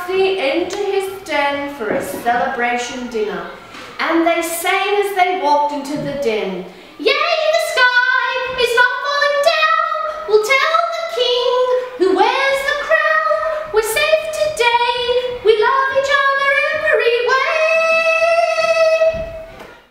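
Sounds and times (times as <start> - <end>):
high voice singing: 14.7 - 19.3.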